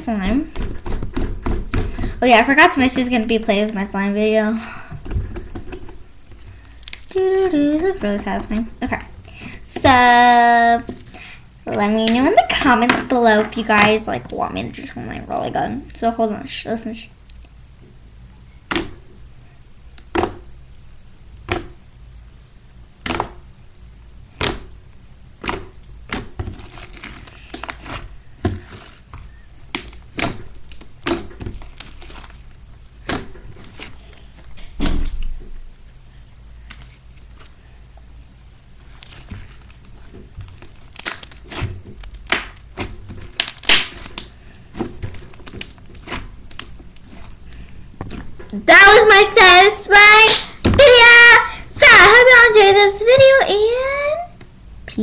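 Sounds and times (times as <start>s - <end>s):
slime crackling and popping: 5.3s - 10.2s, 20.0s - 20.8s, 23.0s - 23.6s, 25.4s - 37.7s, 38.7s - 48.6s, 50.2s - 50.7s.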